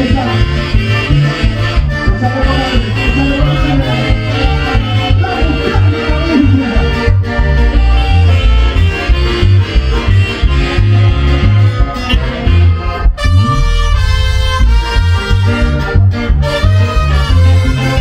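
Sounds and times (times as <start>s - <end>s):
latin dance music: 0.0s - 18.0s.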